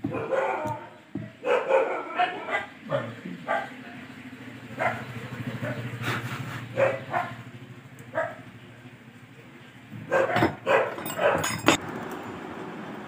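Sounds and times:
dog barking: 0.0s - 3.9s, 4.7s - 6.0s, 6.7s - 7.5s, 8.1s - 8.5s, 10.0s - 11.6s.

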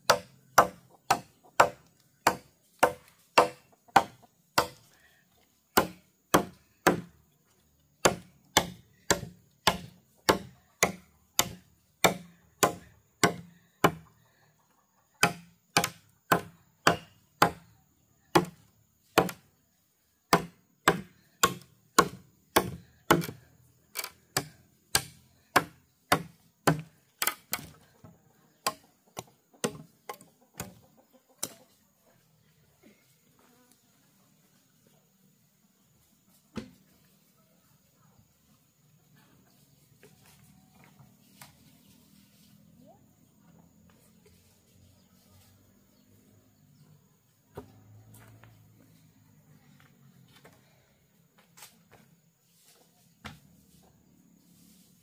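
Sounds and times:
chopping wood: 0.0s - 4.8s, 5.7s - 7.2s, 8.0s - 14.1s, 15.2s - 17.7s, 18.3s - 19.5s, 20.3s - 27.8s, 28.6s - 30.8s.

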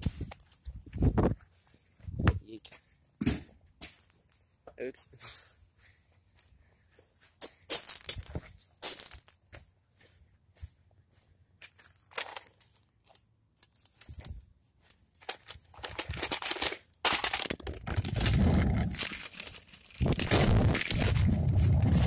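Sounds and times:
wind rumble on microphone: 0.0s - 1.4s, 20.0s - 22.0s
footsteps crunching on gravel: 5.8s - 12.6s.

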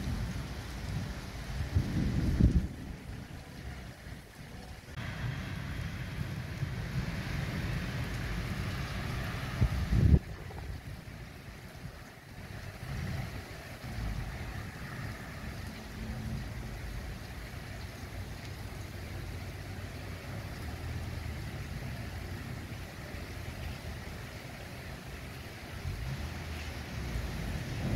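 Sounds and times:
wind buffeting microphone: 0.0s - 3.2s, 5.0s - 15.7s, 25.8s - 27.9s
rain hiss on wet street: 0.0s - 27.9s
low rumble: 4.6s - 11.2s.

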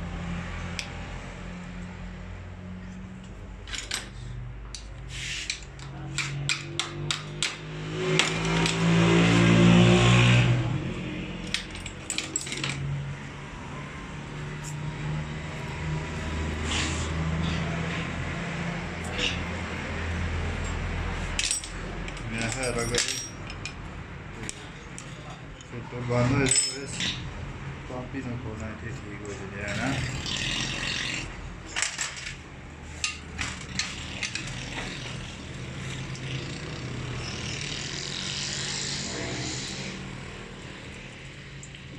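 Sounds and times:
steady engine-like hum: 0.0s - 26.1s
small metal parts clinking: 3.6s - 7.3s, 11.4s - 13.0s, 21.4s - 25.8s, 26.4s - 27.2s, 31.7s - 35.2s.

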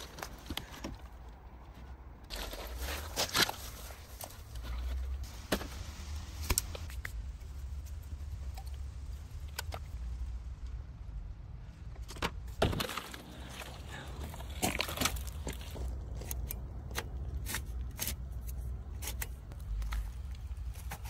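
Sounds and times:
steady low rumble: 0.0s - 21.0s.

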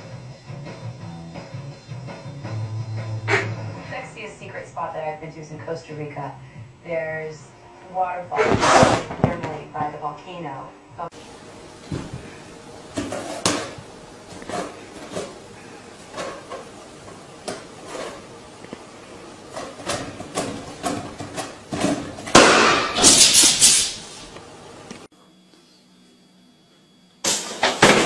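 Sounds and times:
balloon bursting: 8.4s - 9.3s.

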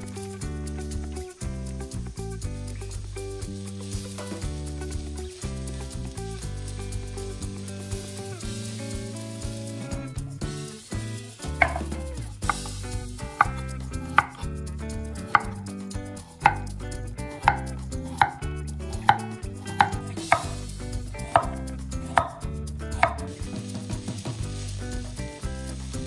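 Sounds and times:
onions sizzling in a frying pan: 0.0s - 14.5s, 15.2s - 26.0s
knife chopping on wooden board: 11.6s - 12.7s, 13.4s - 13.6s, 14.2s - 14.4s, 15.3s - 15.6s, 16.4s - 16.7s, 17.4s - 18.4s, 19.0s - 20.6s, 21.3s - 21.6s, 22.2s - 22.4s, 23.0s - 23.3s.

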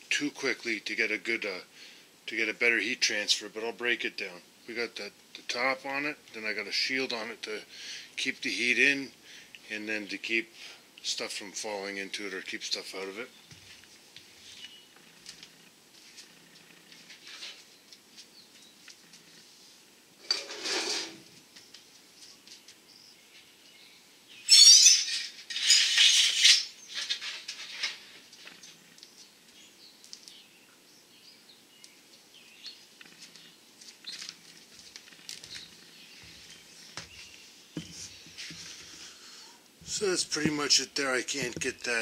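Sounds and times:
sheet metal rattling and scraping: 20.2s - 21.3s, 25.0s - 28.3s.

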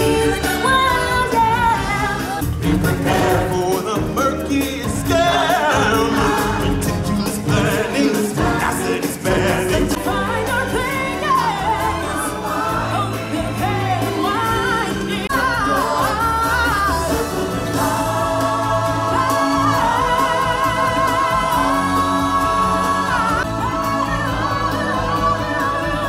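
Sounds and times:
people singing with accompaniment: 0.0s - 26.0s.

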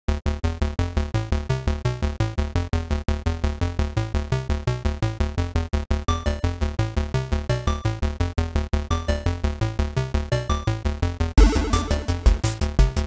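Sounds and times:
pulsing chords over deep bass: 5.8s - 13.0s.

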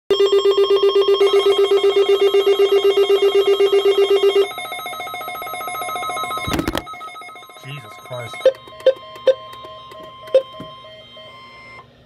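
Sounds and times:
rapidly pulsing electronic beep: 0.2s - 11.8s.

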